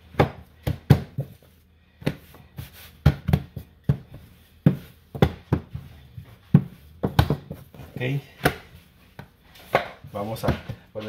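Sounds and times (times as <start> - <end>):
dough thumping on countertop: 0.0 - 1.4, 2.0 - 7.7.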